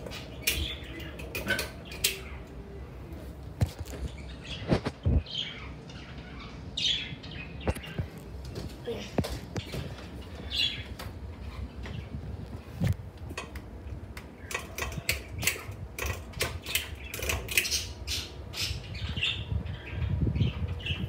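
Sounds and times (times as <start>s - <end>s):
ceiling fan humming: 0.0s - 21.0s
sharp clicks: 12.9s - 17.8s.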